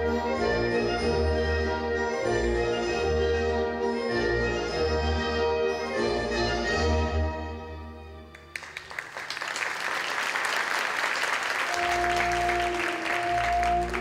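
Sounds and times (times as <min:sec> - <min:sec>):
orchestra playing ballet music: 0:00.0 - 0:08.8, 0:11.6 - 0:14.0
audience applause: 0:08.4 - 0:14.0.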